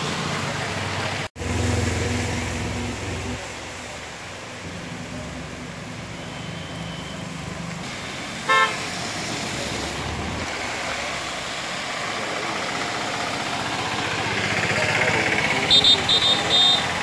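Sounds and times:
rain and tyres hissing: 0:00.0 - 0:17.0
vehicle engines running: 0:00.0 - 0:17.0
vehicle horn toot: 0:08.5 - 0:08.8, 0:15.7 - 0:17.0.

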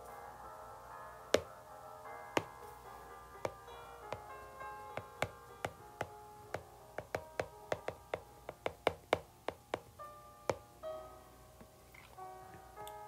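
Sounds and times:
faint background music: 0:00.0 - 0:13.0
stylus tapping on glass screen: 0:05.0 - 0:09.9.

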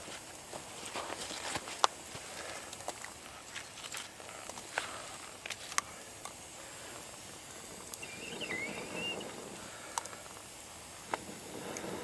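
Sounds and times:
campfire crackling and popping: 0:00.0 - 0:12.0
wavering high chirp: 0:08.0 - 0:09.3.

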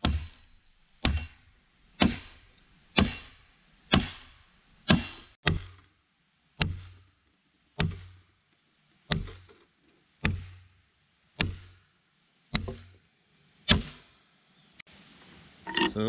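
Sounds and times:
hammer blows: 0:00.0 - 0:05.7.

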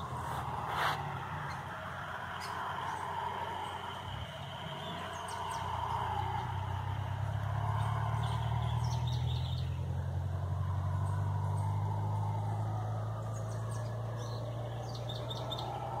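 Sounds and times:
howler monkeys calling: 0:00.0 - 0:10.0
bird chirps: 0:00.2 - 0:06.4, 0:07.7 - 0:09.9, 0:13.2 - 0:15.9.

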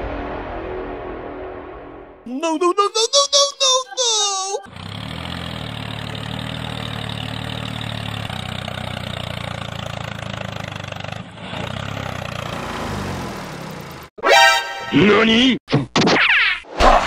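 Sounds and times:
tractor engine running: 0:04.6 - 0:14.1.

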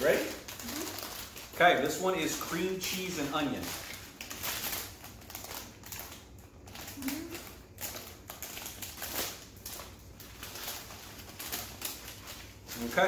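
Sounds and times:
plastic snack bag crinkling: 0:00.0 - 0:13.0.

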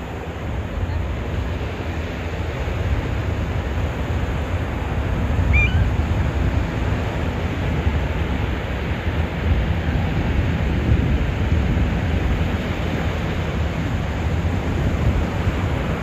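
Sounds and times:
surf washing on beach: 0:00.0 - 0:16.0
wind rumble on microphone: 0:00.0 - 0:16.0
bird chirp: 0:05.5 - 0:05.9.

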